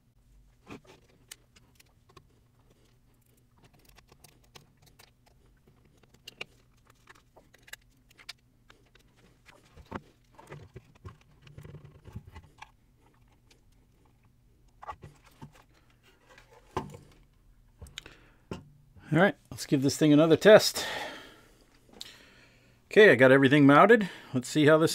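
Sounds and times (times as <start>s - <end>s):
plastic parts clicking and scraping: 0.6s - 18.6s.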